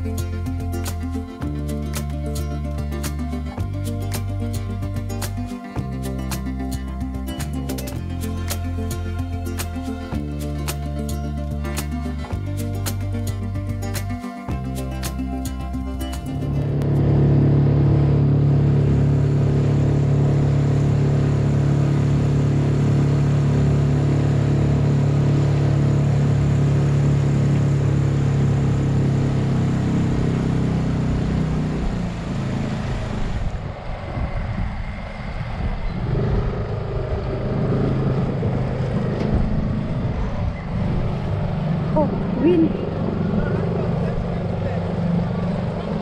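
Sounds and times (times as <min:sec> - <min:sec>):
outboard motor running: 0:00.0 - 0:33.7.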